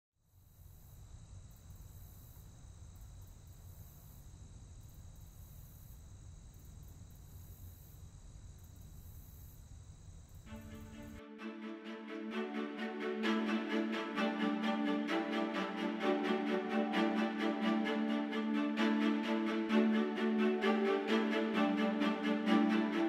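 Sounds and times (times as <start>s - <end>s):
high-pitched whine and hiss: 0.2s - 11.2s
music: 10.5s - 23.0s.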